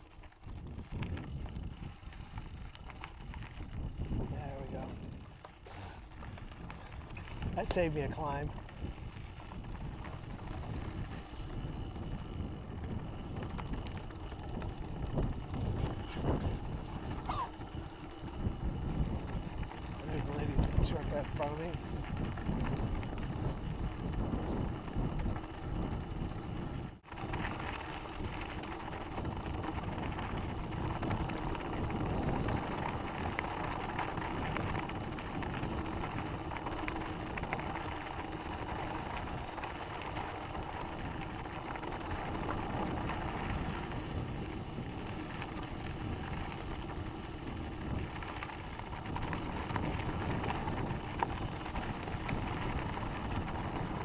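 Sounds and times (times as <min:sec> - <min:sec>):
bike rattling: 0:00.0 - 0:54.0
bike tyres crunching on gravel: 0:00.0 - 0:54.0.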